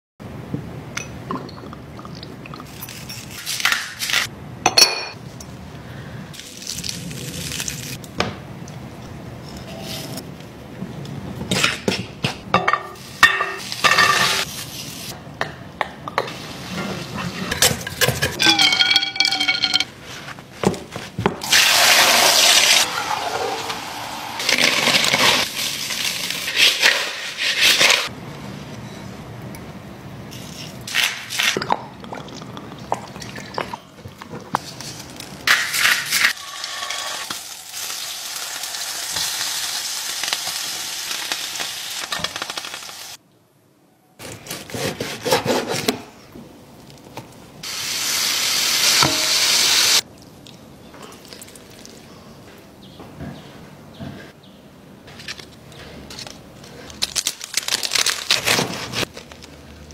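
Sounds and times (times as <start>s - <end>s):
ceramic clink: 18.4s - 19.9s.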